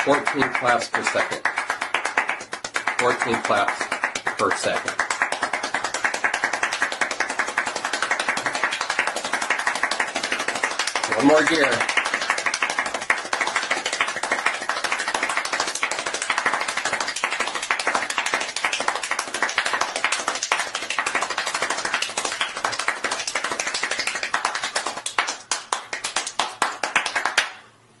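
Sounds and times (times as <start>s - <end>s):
rapid hand clapping: 0.0s - 27.7s.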